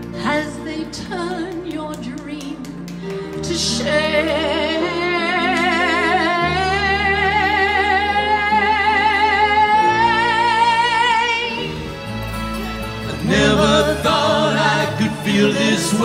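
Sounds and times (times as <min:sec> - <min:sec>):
woman singing with vibrato: 0:03.4 - 0:11.7
live band playing: 0:09.8 - 0:16.0.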